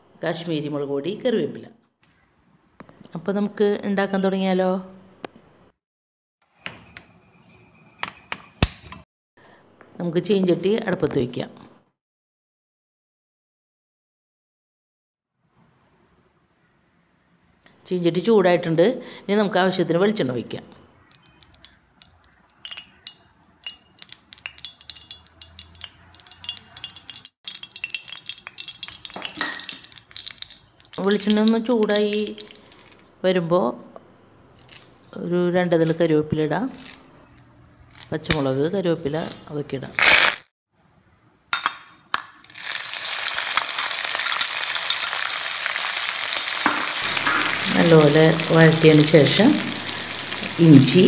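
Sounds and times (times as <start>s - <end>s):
oil ticking and crackling in pan: 21.1s - 33.0s, 42.5s - 51.0s.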